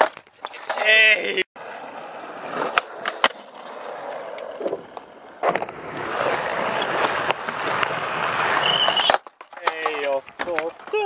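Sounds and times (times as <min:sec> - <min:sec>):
skateboard clack: 0:00.0 - 0:00.9, 0:01.6 - 0:11.0
skateboard wheels rolling on asphalt: 0:00.0 - 0:11.0.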